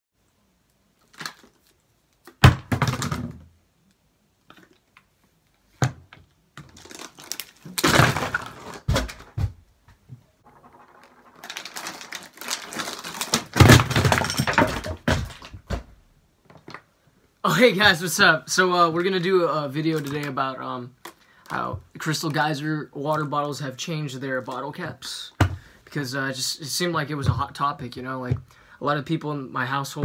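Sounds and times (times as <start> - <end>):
rustling: 6.6 - 15.9
thumps and knocks: 13.5 - 16.8, 25.4 - 25.7.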